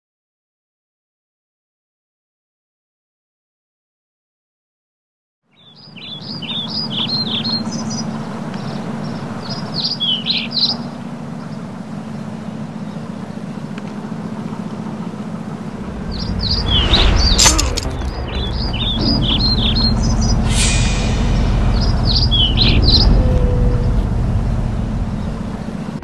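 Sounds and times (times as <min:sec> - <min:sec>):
small birds chirping: 0:05.5 - 0:26.0
steady low hum: 0:06.2 - 0:26.0
deep rumble: 0:15.4 - 0:26.0.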